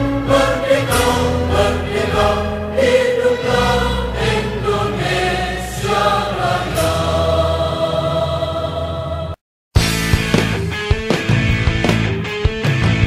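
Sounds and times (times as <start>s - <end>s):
choir singing held notes: 0.0s - 9.4s
musical accompaniment: 0.0s - 13.0s.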